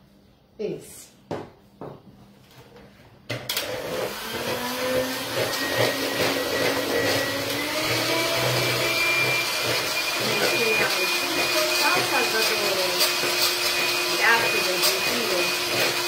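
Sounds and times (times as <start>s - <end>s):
electric mixer humming: 3.5s - 16.0s.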